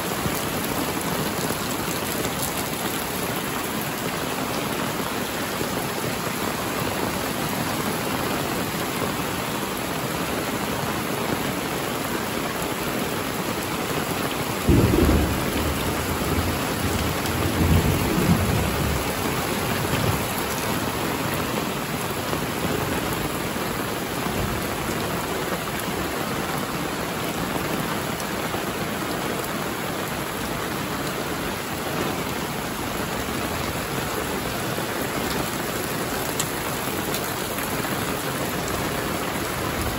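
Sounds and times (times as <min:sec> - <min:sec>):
heavy rain falling: 0:00.0 - 0:39.9
thunder crack and rumble: 0:14.6 - 0:20.5.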